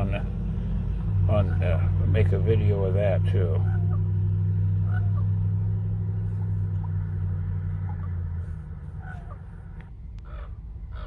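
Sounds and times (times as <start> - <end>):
car engine idling: 0.0 - 11.0
crow calls: 3.5 - 4.2, 4.8 - 5.4, 8.9 - 11.0.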